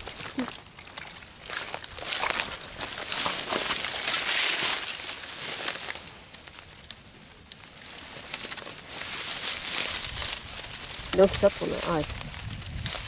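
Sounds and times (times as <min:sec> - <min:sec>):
dry reeds rustling and crackling: 0:00.0 - 0:13.0.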